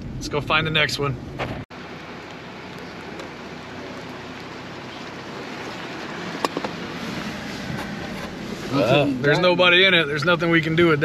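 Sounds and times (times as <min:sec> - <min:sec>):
truck tyre and road noise: 0:00.0 - 0:11.0.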